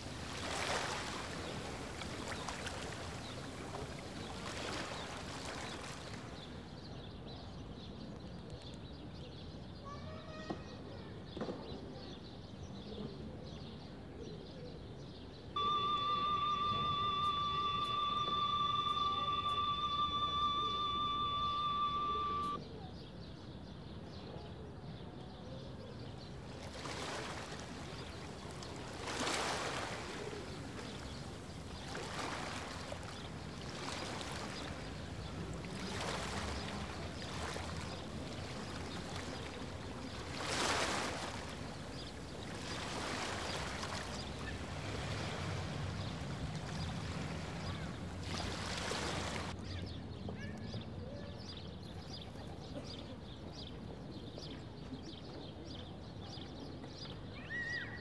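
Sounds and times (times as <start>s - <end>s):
sea waves breaking: 0.0s - 6.6s, 15.6s - 22.6s, 26.7s - 49.6s.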